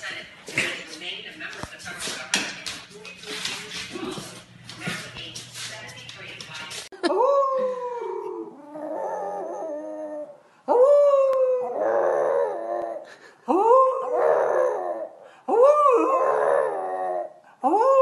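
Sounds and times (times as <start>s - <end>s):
dog howling: 7.1s - 18.0s.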